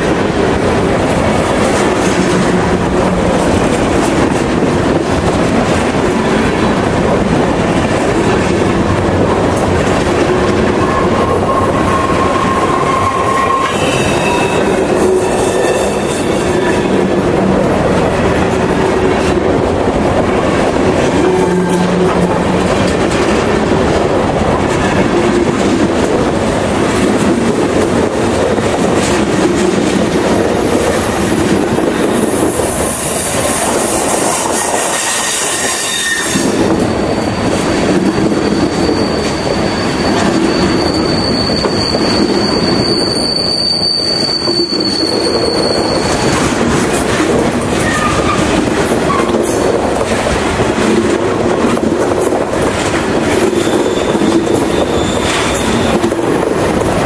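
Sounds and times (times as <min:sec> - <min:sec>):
freight car wheels rumbling and clicking: 0:00.0 - 0:15.2, 0:15.9 - 0:35.0, 0:36.4 - 0:57.0
high wheel squeal: 0:10.6 - 0:17.0, 0:34.4 - 0:46.4, 0:53.5 - 0:56.0.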